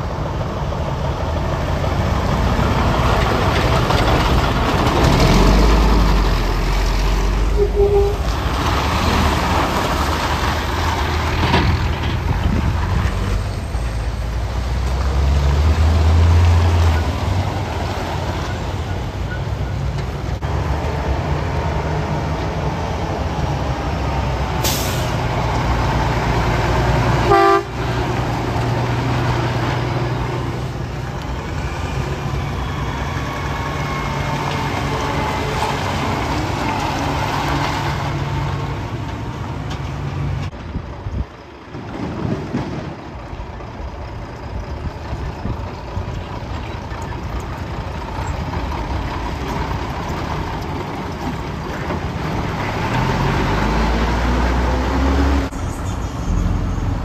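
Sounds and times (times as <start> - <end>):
diesel truck engines droning: 0.0 - 57.0
short pitched toot: 7.5 - 8.3.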